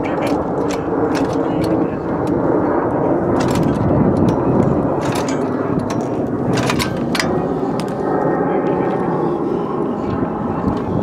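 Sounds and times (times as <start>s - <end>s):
steady engine drone: 0.0s - 11.0s
pull-start cord scraping and clicking: 0.1s - 2.4s, 3.3s - 8.0s.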